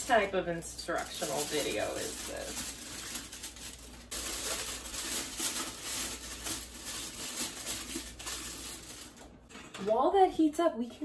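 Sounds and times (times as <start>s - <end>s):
aluminium foil crinkling: 0.0s - 9.5s.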